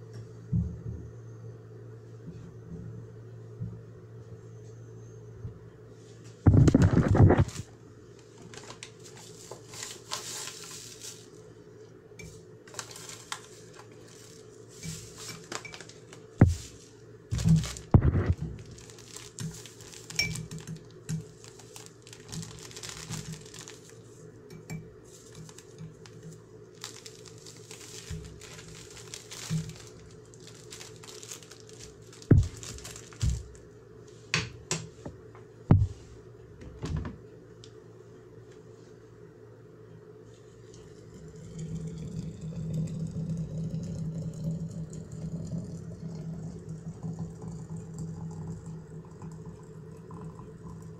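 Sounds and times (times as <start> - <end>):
plastic bag crinkling: 6.6 - 11.4, 12.7 - 24.2, 25.0 - 33.6
handling knocks: 32.2 - 33.6, 35.7 - 36.0.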